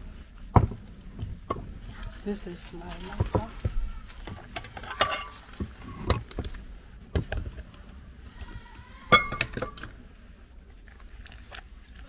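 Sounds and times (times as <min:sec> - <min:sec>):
metal pot clank: 0:04.7 - 0:05.4, 0:09.1 - 0:09.8.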